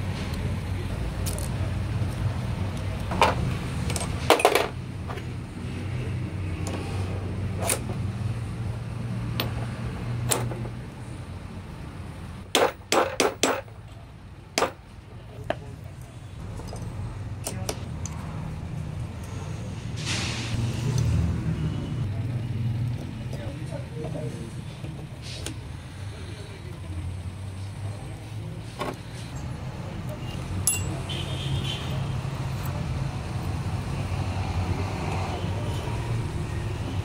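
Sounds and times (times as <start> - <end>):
metal gearbox parts clinking: 30.6 - 30.9.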